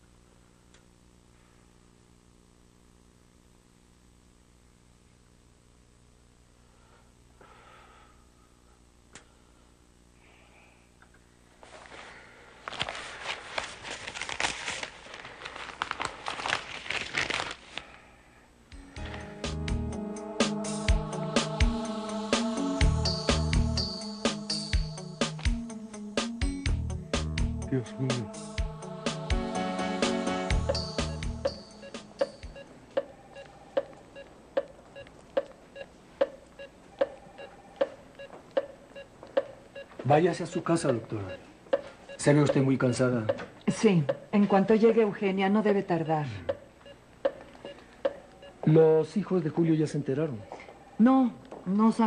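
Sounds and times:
newspaper pages rustling: 0:11.6 - 0:18.0
music with low notes and hits: 0:18.7 - 0:32.6
cardiac monitor beeping: 0:30.5 - 0:44.8, 0:45.9 - 0:49.4
faint monitor blips: 0:30.7 - 0:44.4, 0:46.3 - 0:48.8.

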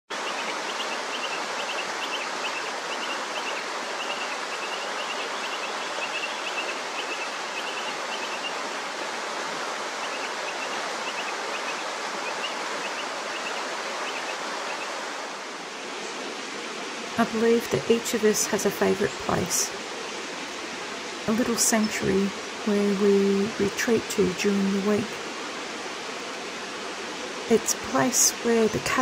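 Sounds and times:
creek water rushing over rocks: 0:00.1 - 0:29.0.

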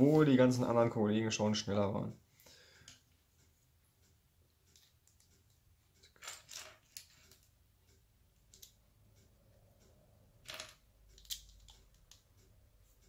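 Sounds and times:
plastic bricks clicking and clattering: 0:10.4 - 0:12.2.

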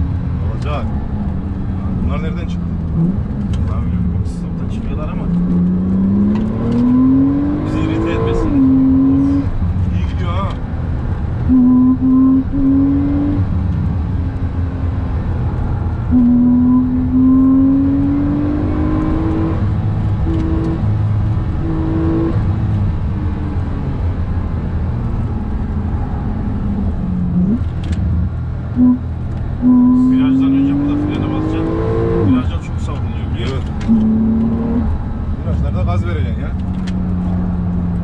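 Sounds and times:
car engine accelerating: 0:00.0 - 0:38.0
tyre and road rumble: 0:00.0 - 0:38.0
gear changes: 0:26.5 - 0:38.0.

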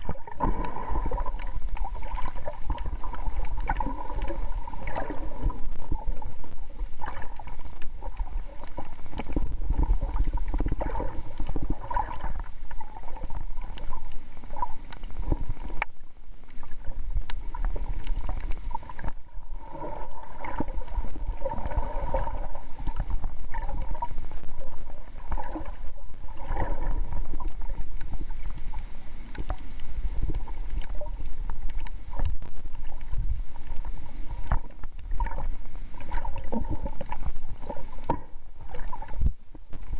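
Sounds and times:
underwater rumble of moving water: 0:00.0 - 0:39.9
water gurgles: 0:00.0 - 0:39.9
faint clicks: 0:13.6 - 0:19.2, 0:27.3 - 0:36.2.

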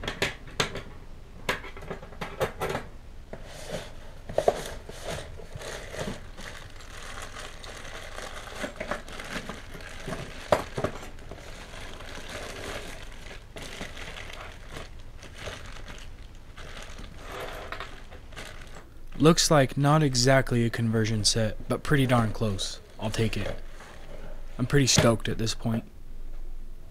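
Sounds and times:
plastic bags crinkling: 0:03.7 - 0:19.0.

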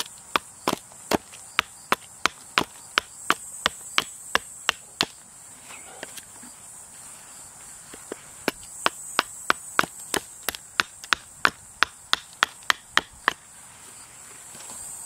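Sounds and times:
hatchet chopping wood: 0:00.0 - 0:05.2, 0:08.4 - 0:13.4.

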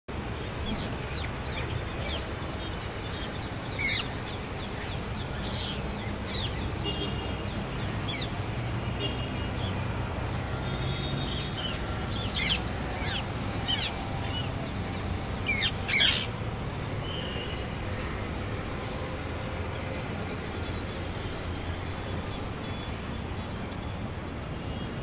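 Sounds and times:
parakeets squawking: 0:15.5 - 0:16.3.

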